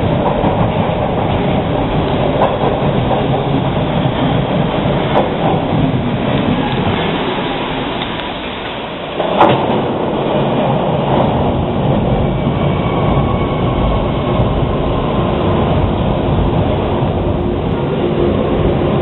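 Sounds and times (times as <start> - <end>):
subway train rumbling: 0.0 - 19.0.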